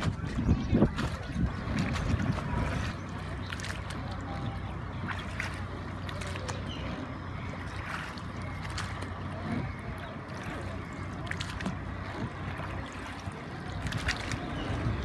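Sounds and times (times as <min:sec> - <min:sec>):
steady low hum: 0:00.0 - 0:15.0
water lapping against boat hull: 0:00.0 - 0:15.0.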